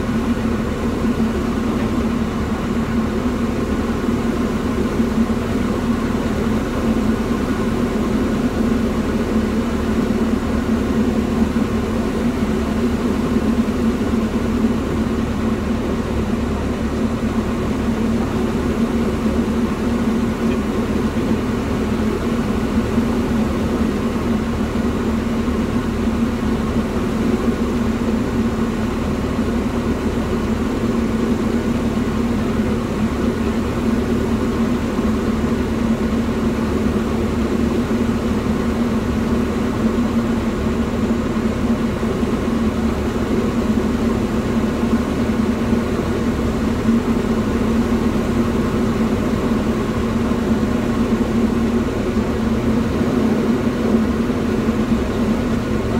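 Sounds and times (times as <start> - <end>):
propeller aircraft engine droning: 0.0 - 55.9.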